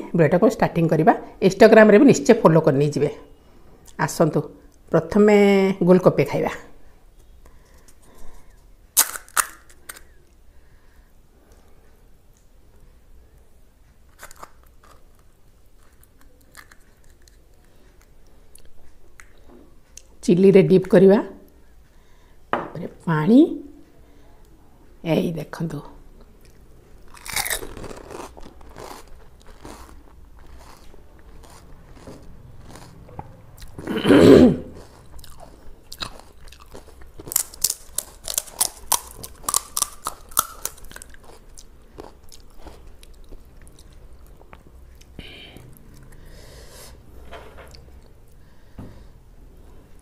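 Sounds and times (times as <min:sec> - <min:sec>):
chewing and crunching: 0:14.1 - 0:19.4, 0:26.4 - 0:33.9, 0:34.6 - 0:46.3.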